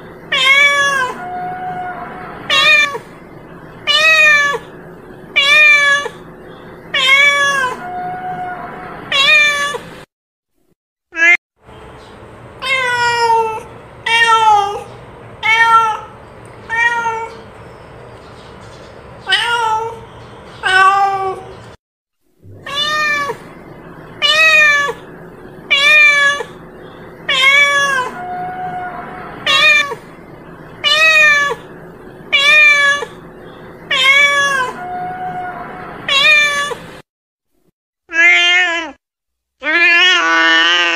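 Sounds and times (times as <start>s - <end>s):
cat meowing: 0.3s - 3.1s, 3.8s - 4.7s, 5.4s - 6.2s, 6.9s - 9.8s, 12.6s - 17.4s, 19.2s - 20.0s, 20.6s - 21.5s, 22.5s - 23.5s, 24.2s - 25.1s, 25.7s - 26.6s, 27.3s - 30.1s, 30.8s - 31.7s, 32.3s - 33.2s, 33.9s - 36.9s, 38.1s - 39.0s, 39.6s - 40.9s.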